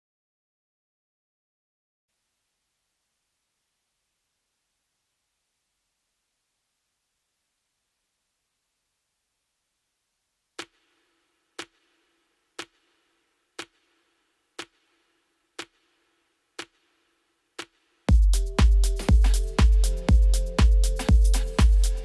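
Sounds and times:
electronic dance music: 17.6 - 22.0.

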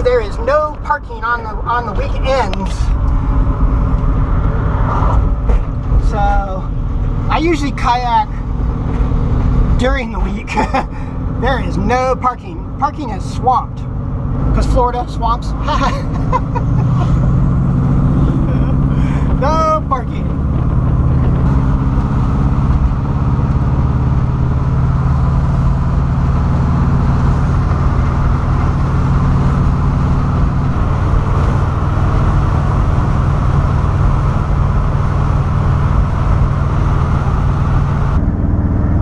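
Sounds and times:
car engine cruising: 0.0 - 39.0
road and wind noise: 0.0 - 39.0.

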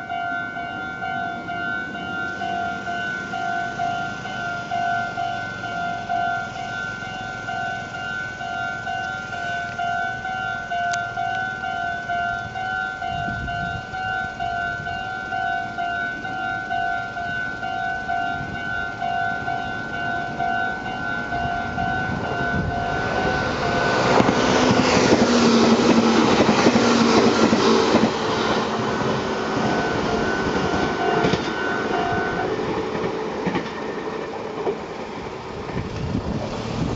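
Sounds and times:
level-crossing bell ringing: 0.0 - 33.0
train rumble and wheel clatter: 0.0 - 36.9.

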